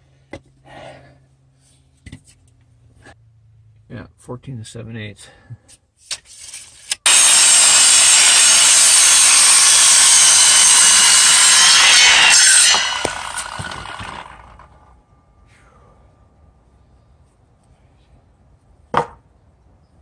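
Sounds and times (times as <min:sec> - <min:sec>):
circular saw cutting wood: 0:07.0 - 0:14.9.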